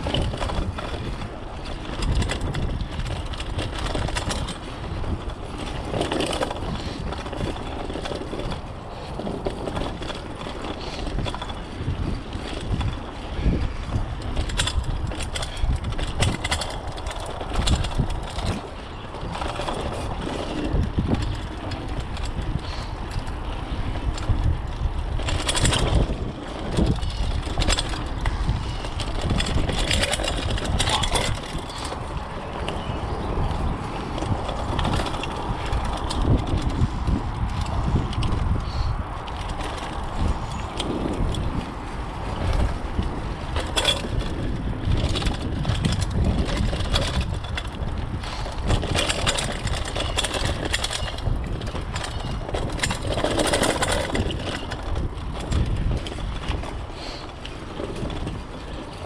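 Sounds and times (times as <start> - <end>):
bike knocking and rattling: 0.0 - 59.0
bike tyres rolling over dirt: 0.0 - 59.0
wind rumble on microphone: 0.0 - 59.0.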